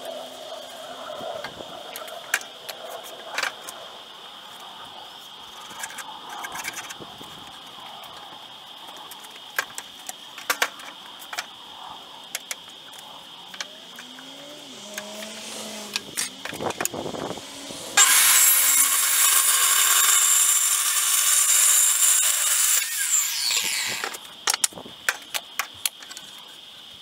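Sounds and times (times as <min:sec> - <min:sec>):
steady high-pitched whine: 0:00.0 - 0:27.0
tools clicking and knocking: 0:24.0 - 0:26.3.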